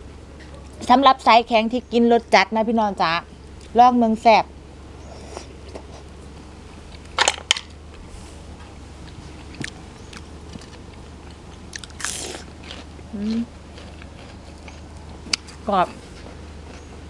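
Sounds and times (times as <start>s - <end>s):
low steady hum: 0.0s - 17.0s
crunch of chewing: 9.0s - 17.0s
crisp bites: 9.5s - 15.5s.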